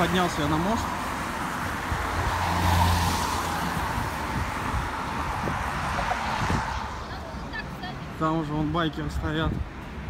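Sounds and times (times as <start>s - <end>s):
tyres hissing on wet road: 0.0s - 7.4s
car engine hum: 0.0s - 10.0s.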